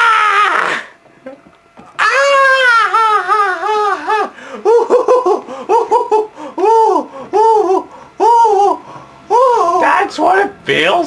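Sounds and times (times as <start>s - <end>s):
wavering cry: 0.0s - 1.0s, 2.0s - 10.1s
young man laughing loudly: 2.2s - 8.6s.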